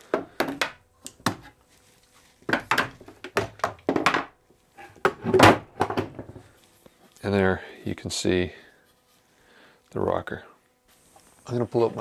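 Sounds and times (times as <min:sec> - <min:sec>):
wooden knocks on workbench: 0:02.5 - 0:04.3.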